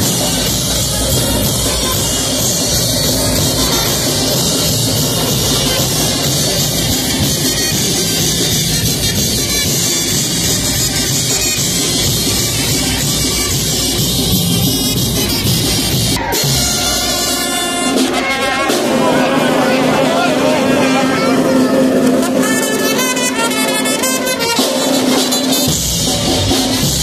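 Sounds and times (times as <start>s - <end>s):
hand cymbals crashing: 0.0s - 19.9s
bass drum: 0.0s - 20.0s
brass band playing: 0.0s - 27.0s.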